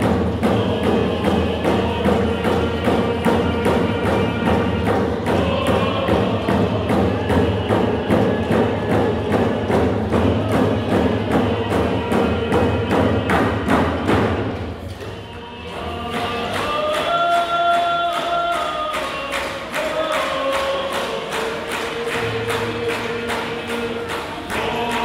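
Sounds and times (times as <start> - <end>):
large drum steady beat: 0.0 - 14.8
singers chanting: 0.0 - 25.0.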